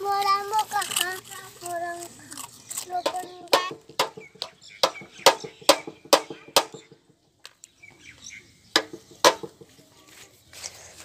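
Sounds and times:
knocks on a hard object: 3.1s - 7.1s, 8.8s - 9.7s.

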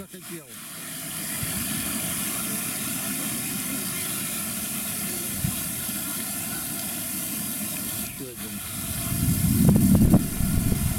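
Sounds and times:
even hiss: 0.0s - 10.9s
low uneven rumble: 8.8s - 10.9s.

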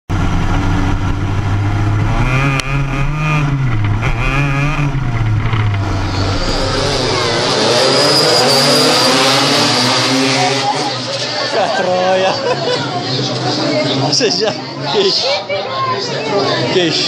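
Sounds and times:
kart engine revving: 0.1s - 11.9s.

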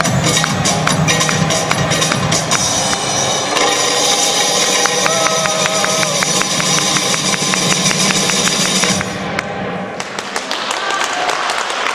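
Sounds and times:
dance music over speakers: 0.0s - 9.4s.

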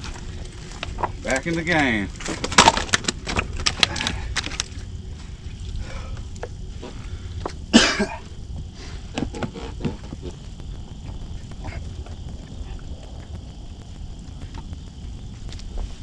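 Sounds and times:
low steady rumble: 0.0s - 16.0s
cough-like vocal burst: 7.7s - 8.2s.

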